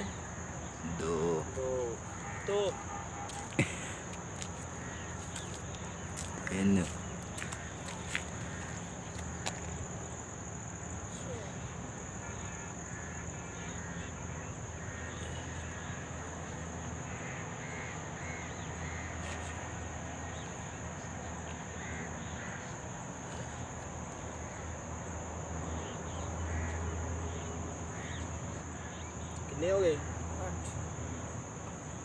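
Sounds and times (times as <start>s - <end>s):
high-pitched insect drone: 0.0s - 17.2s
crows cawing: 1.1s - 9.8s, 12.3s - 20.5s, 21.5s - 23.6s, 25.8s - 29.1s.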